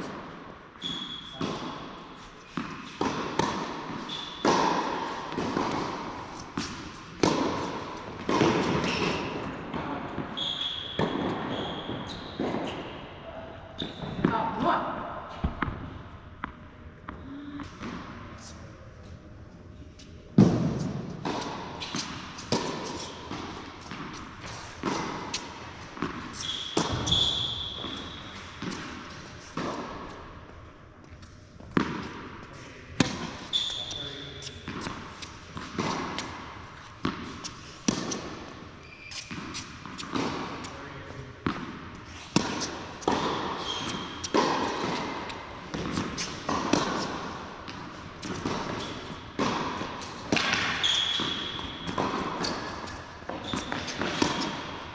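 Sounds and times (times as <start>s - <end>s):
rackets striking tennis ball: 0.0s - 13.0s, 20.4s - 54.9s
high shoe squeaks: 0.8s - 3.1s, 4.0s - 4.8s, 8.6s - 9.6s, 10.3s - 13.0s, 26.3s - 29.6s, 33.0s - 38.2s, 38.8s - 40.8s, 42.1s - 45.4s, 46.0s - 47.1s, 50.0s - 54.7s
tennis ball bouncing: 1.4s - 1.9s, 2.5s - 12.9s, 20.4s - 40.7s, 41.4s - 54.9s.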